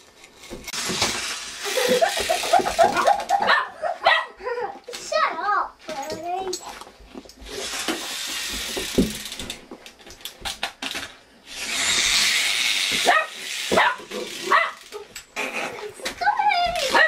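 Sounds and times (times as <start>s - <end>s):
dog yelping: 13.1s - 15.1s.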